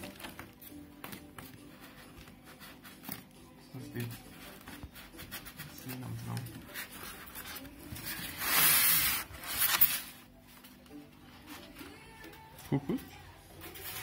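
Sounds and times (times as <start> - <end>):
foam scraping against cardboard box: 8.0 - 10.0.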